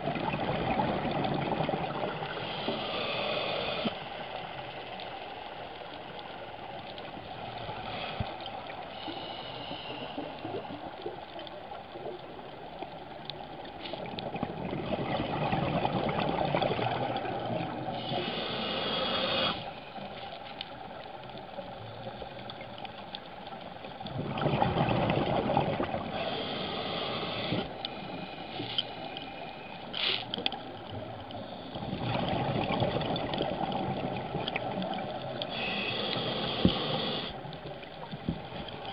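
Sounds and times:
diver breathing through regulator: 2.2s - 4.1s, 7.7s - 10.7s, 18.0s - 19.8s, 26.1s - 30.3s, 35.5s - 37.4s
bubbling exhalations underwater: 14.4s - 17.7s, 24.1s - 26.1s.

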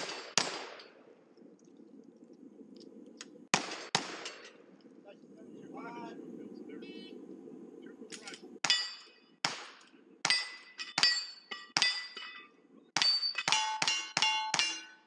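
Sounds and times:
rifle shots: 0.0s - 1.0s, 3.5s - 4.6s, 8.6s - 10.6s
steel plate clanging: 8.6s - 9.2s, 10.2s - 15.0s.

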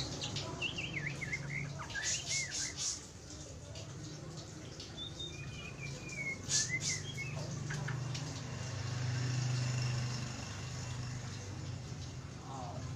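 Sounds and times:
bird chirping and whistling: 0.6s - 3.0s, 5.0s - 7.5s.

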